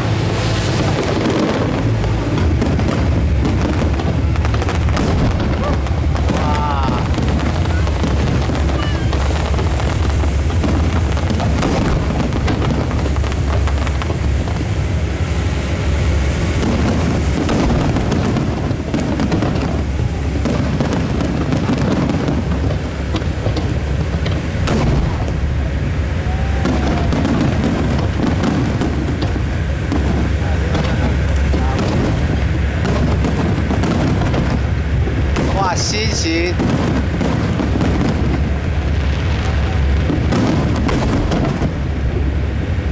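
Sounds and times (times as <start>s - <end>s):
fireworks booming and crackling: 0.0s - 42.9s.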